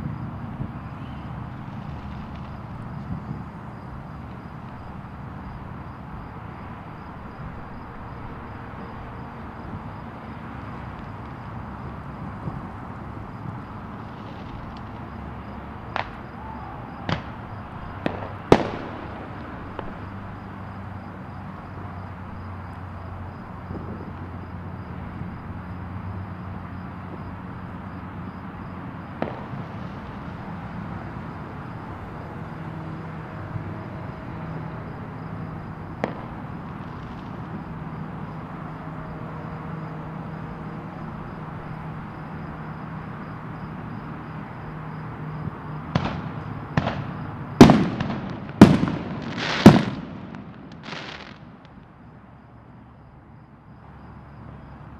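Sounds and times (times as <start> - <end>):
fireworks bangs: 0.0 - 5.1, 13.7 - 20.4, 29.2 - 31.8, 33.8 - 37.8, 45.9 - 51.8.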